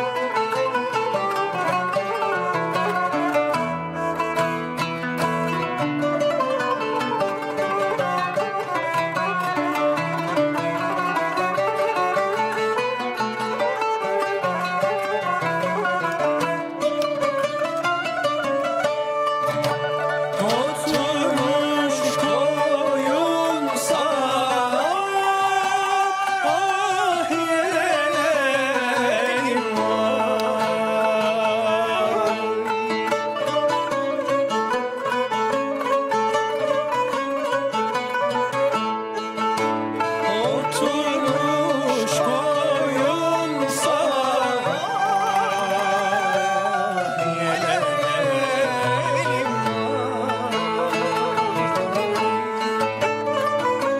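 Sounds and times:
oud and kanun playing: 0.0 - 53.9
man singing with vibrato: 20.3 - 33.1, 40.2 - 53.0.

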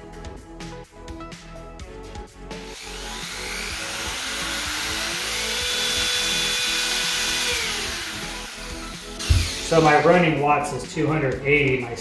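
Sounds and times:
electric drill motor whine: 2.6 - 9.8.

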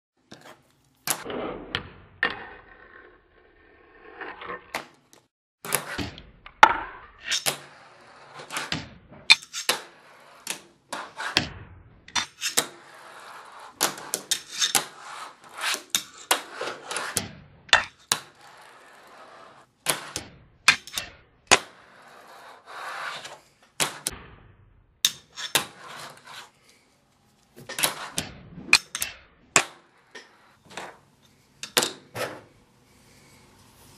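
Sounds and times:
trucks scraping on tile ledge: 18.0 - 19.7, 21.6 - 23.6, 25.4 - 26.7.

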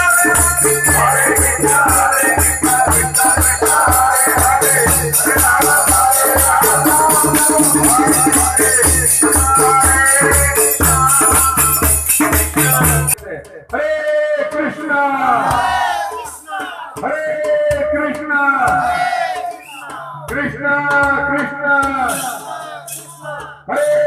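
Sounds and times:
hand cymbals clashing: 0.0 - 13.2, 22.1 - 23.3
drum beats: 0.0 - 24.0
voices singing through microphone: 0.0 - 24.0.

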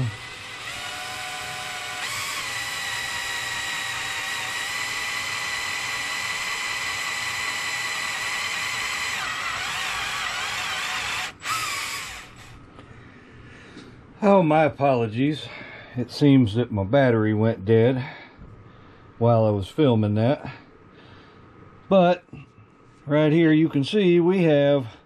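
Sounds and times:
electric drill whining: 0.0 - 12.6.

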